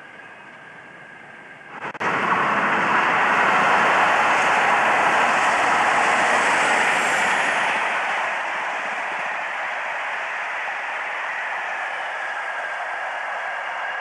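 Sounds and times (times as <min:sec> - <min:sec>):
diesel locomotive passing at speed: 0:00.0 - 0:14.0
wheels on rails: 0:00.0 - 0:14.0.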